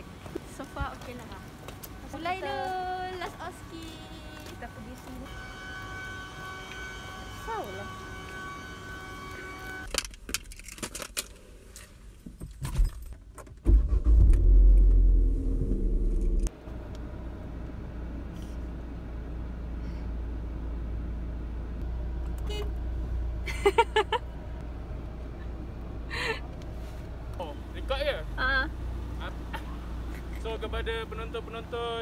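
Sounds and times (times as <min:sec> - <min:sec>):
car engine starting and idling: 0:13.6 - 0:26.7.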